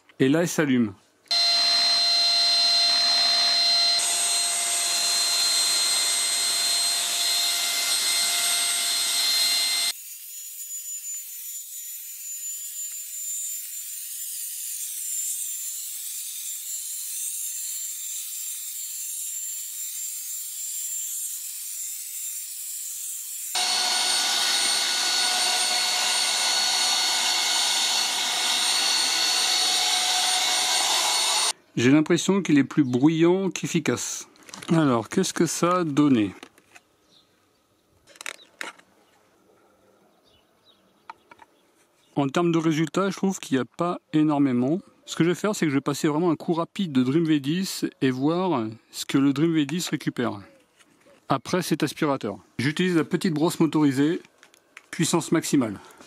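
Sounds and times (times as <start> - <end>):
handheld vacuum cleaner running: 1.3 - 10.0, 23.5 - 31.6.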